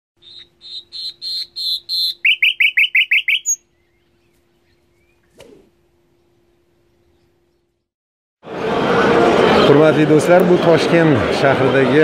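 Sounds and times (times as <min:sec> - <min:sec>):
nightingale singing: 0:00.2 - 0:05.3.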